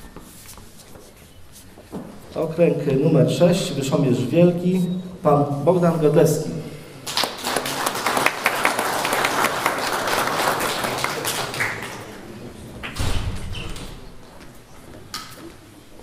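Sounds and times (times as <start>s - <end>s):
audience applause: 7.0s - 12.3s.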